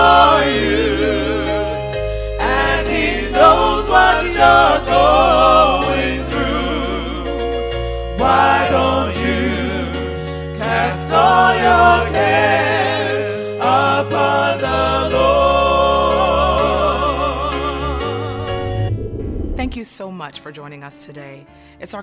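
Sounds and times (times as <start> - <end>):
gospel singing voices: 0.0 - 18.8
sustained low bass notes: 17.0 - 19.8.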